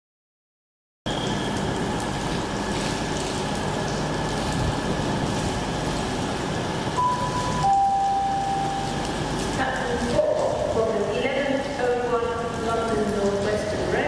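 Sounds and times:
trains rumbling and hissing: 1.1s - 14.0s
electronic two-note tone: 7.0s - 9.1s.

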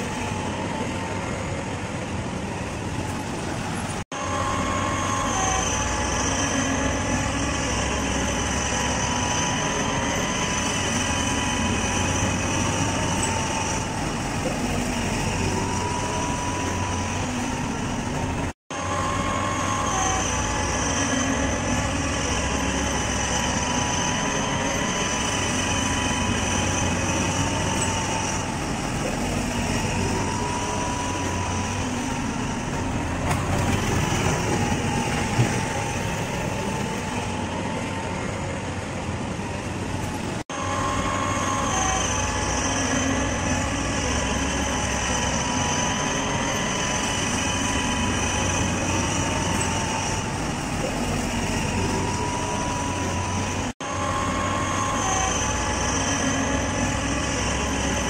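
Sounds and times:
heavy rail machinery rumble: 0.0s - 58.0s.

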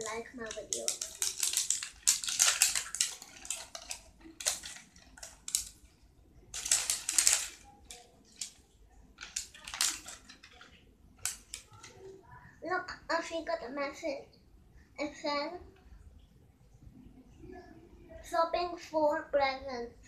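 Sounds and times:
plastic wrapping crinkling: 0.0s - 12.2s.

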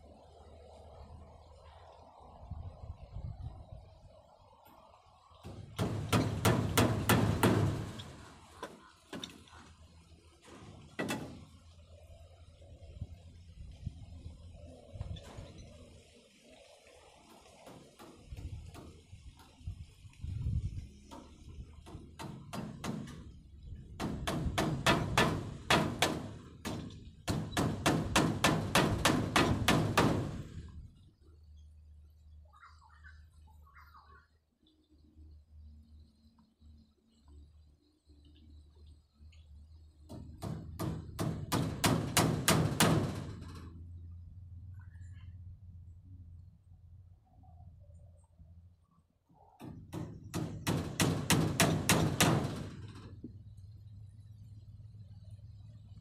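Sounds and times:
hammering on wooden frame: 5.4s - 9.4s, 10.8s - 11.5s, 17.6s - 19.5s, 21.1s - 30.7s, 40.1s - 43.8s, 49.6s - 53.2s.

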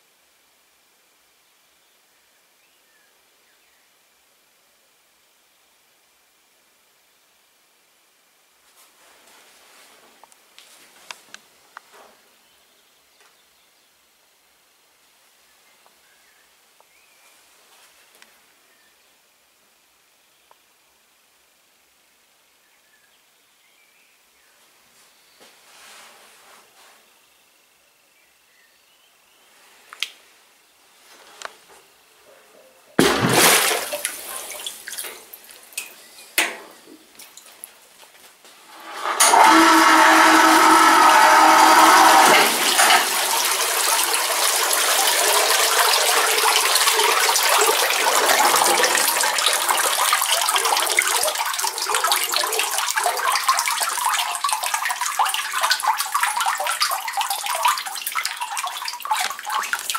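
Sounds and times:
liquid splashing in tank: 33.0s - 35.9s, 38.8s - 59.9s
liquid pouring into tank: 33.0s - 36.0s, 38.7s - 59.9s.

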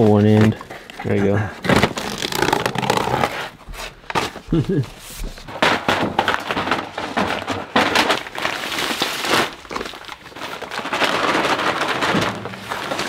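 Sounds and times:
paper sacks crinkling: 0.0s - 13.0s
feed pouring into metal drums: 10.8s - 13.0s.

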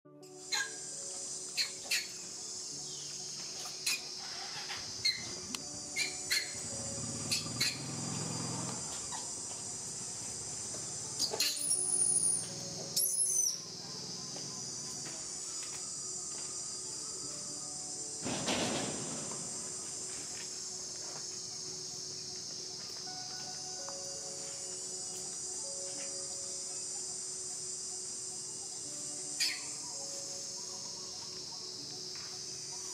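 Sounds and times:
insects droning: 0.1s - 32.9s
thin high squeaks: 3.6s - 6.6s, 11.2s - 13.7s.

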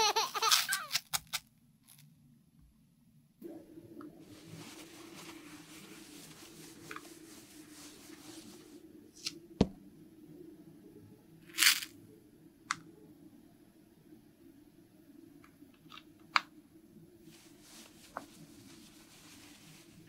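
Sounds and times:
towel rustling on toy: 4.2s - 9.3s, 17.3s - 20.0s.

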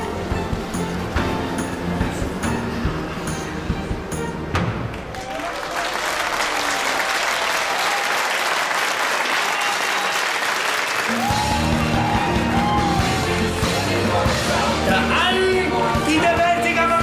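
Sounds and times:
music: 0.0s - 5.4s, 11.0s - 17.0s
audience applauding: 4.8s - 14.8s.

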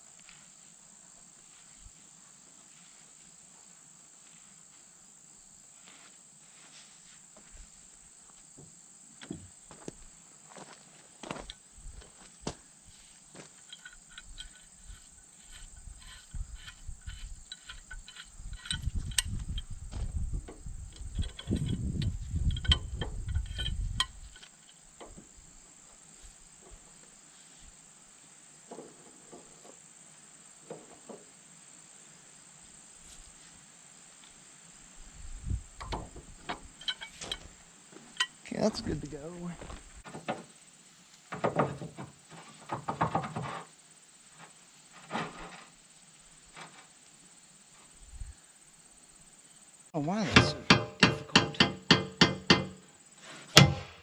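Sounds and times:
high insect drone: 0.0s - 54.0s
pipe wrench clicking on metal: 13.7s - 19.7s, 20.9s - 24.5s, 50.3s - 52.8s.

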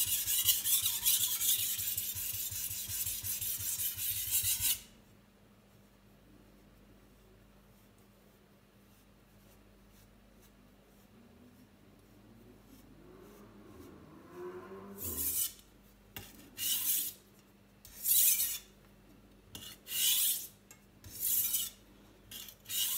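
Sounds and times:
knife scraping on whetstone: 0.0s - 4.9s, 14.9s - 17.2s, 17.8s - 18.7s, 19.5s - 22.9s.

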